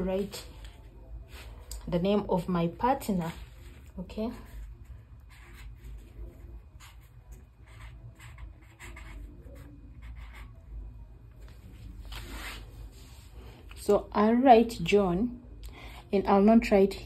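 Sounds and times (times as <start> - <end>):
low steady hum: 0.0 - 17.0
marker pen writing on paper: 3.2 - 10.8.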